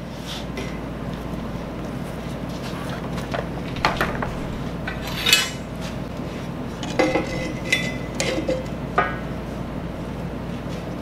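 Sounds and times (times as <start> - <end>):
low hum: 1.0 - 10.2
metallic clanks of steel parts: 3.7 - 5.7, 6.7 - 8.7.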